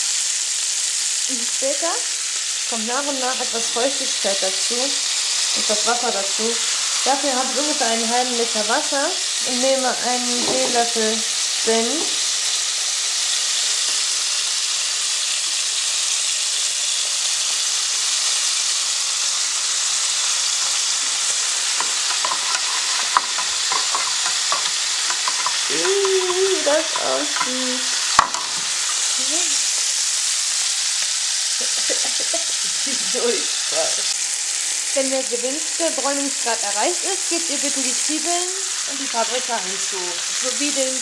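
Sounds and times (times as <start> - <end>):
meat sizzling in a pan: 0.0 - 41.0.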